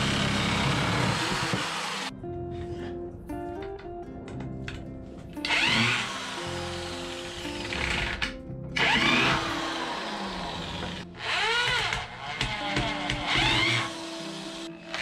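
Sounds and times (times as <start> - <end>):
electric drill into wood: 0.0 - 2.1, 5.4 - 15.0
background music: 0.0 - 15.0.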